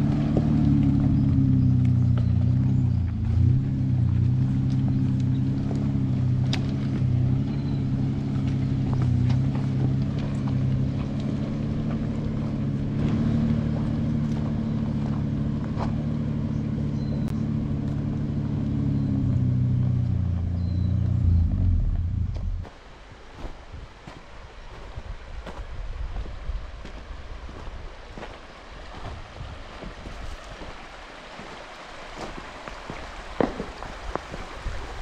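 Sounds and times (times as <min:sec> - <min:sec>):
vehicle engine droning: 0:00.0 - 0:22.8.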